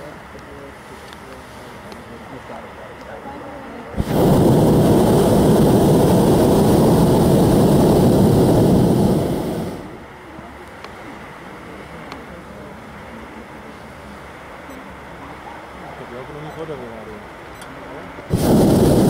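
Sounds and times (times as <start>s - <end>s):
propane burner rushing blast: 3.9s - 10.0s, 18.3s - 19.0s.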